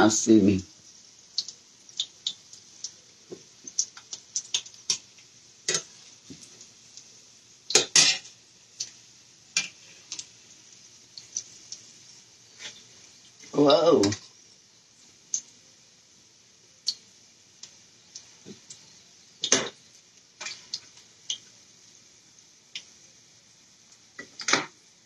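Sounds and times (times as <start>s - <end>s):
frying oil hissing: 0.0s - 25.0s
metal spatula clinking on pot: 7.7s - 8.3s.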